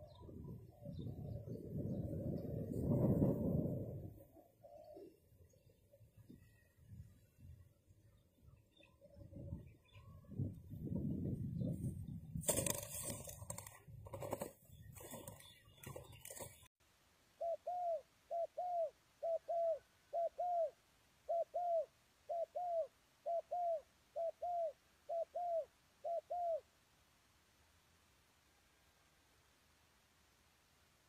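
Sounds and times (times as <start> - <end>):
dove cooing: 0.0 - 5.6, 17.4 - 26.7.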